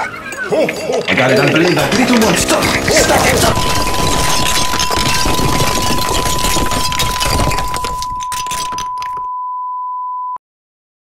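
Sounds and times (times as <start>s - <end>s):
loud crackling noise: 1.8s - 8.1s.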